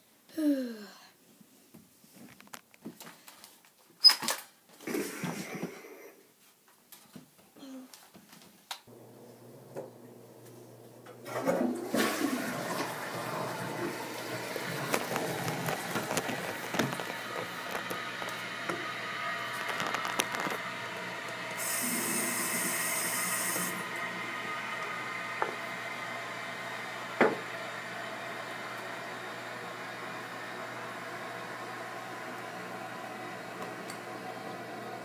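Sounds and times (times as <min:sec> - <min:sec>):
water rushing: 0:11.2 - 0:26.9.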